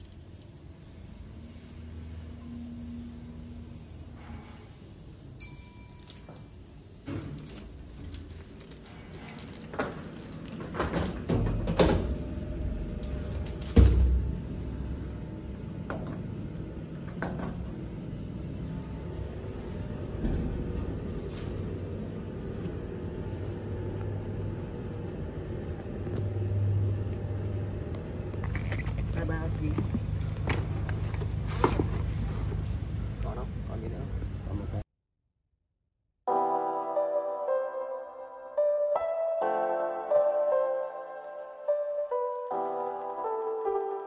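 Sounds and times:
elevator car rumble: 0.0 - 34.8.

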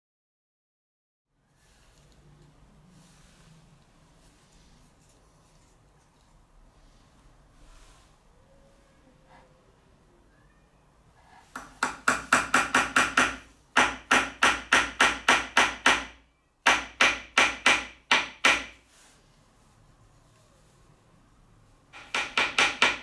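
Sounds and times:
hammer tapping on plywood: 11.5 - 18.8, 22.0 - 23.0.

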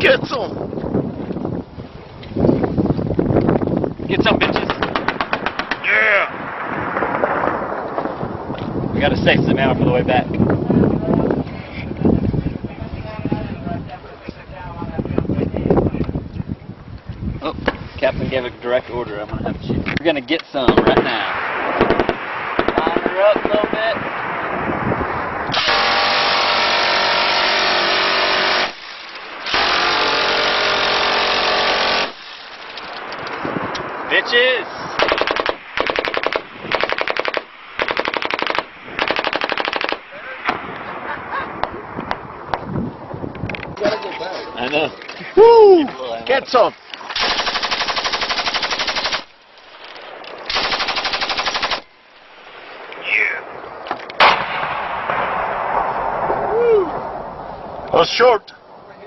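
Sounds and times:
minigun firing: 4.4 - 7.5, 20.7 - 23.8, 25.5 - 33.1, 35.0 - 40.6, 47.0 - 49.4, 50.5 - 51.9
machine gun bursts: 25.6 - 32.8, 35.0 - 40.0, 47.1 - 49.4, 50.5 - 51.9
sharp bang: 54.2 - 56.3.

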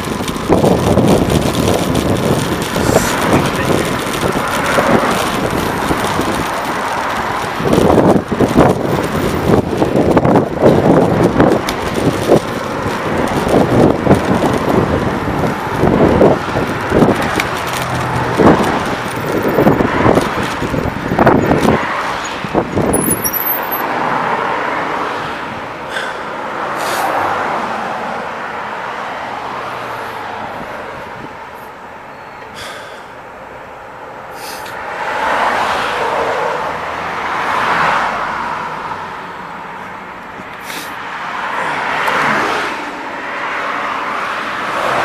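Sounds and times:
wind buffeting microphone: 0.0 - 25.7, 30.2 - 31.4
car passing: 0.0 - 45.0
car traffic: 0.0 - 45.0.

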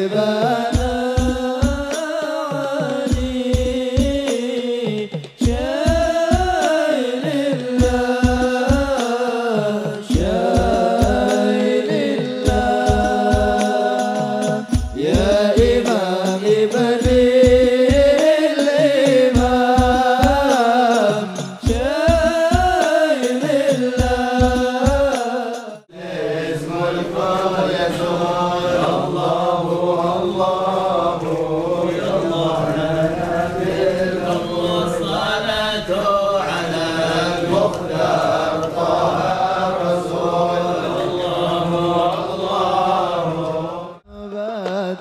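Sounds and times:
drum beats: 0.0 - 25.8, 44.1 - 45.0
person singing: 0.0 - 38.2, 38.8 - 45.0
men chanting together: 0.0 - 45.0.

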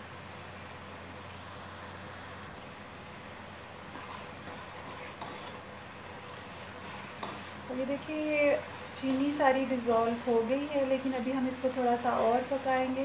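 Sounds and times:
syrup boiling in pot: 0.0 - 13.0
spoon scraping pot: 3.9 - 5.6, 6.8 - 7.6.

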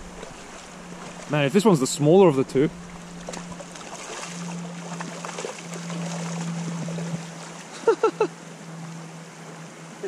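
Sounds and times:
low hum: 0.0 - 10.0
river running over stones: 0.0 - 10.0.

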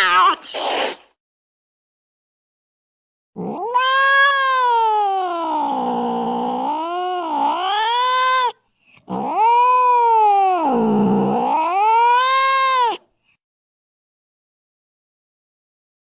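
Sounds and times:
cat yowling meows: 0.0 - 0.5, 3.4 - 13.0.

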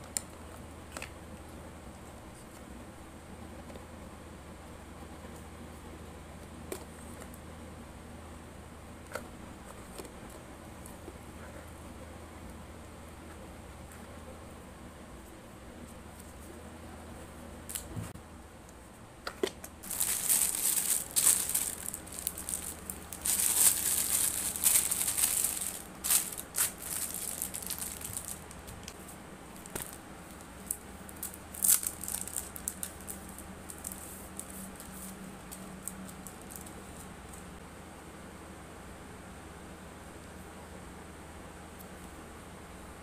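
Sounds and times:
faint low hum: 0.0 - 43.0
packaging crinkling and rustling: 19.4 - 36.7.

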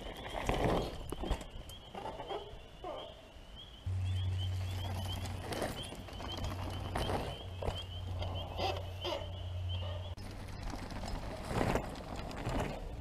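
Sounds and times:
steady low hum: 3.7 - 12.0.

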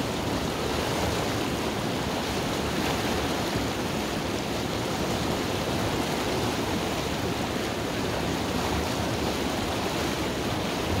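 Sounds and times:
river flowing over rapids: 0.0 - 11.0.

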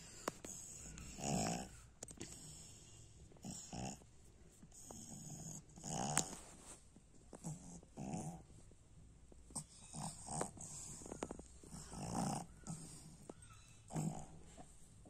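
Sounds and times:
dog breathing noisily: 10.1 - 14.8.

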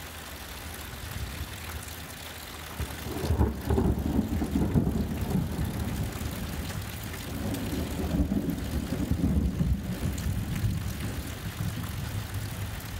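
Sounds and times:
rain hissing: 0.0 - 12.9
thunder rumbling: 2.8 - 12.8.

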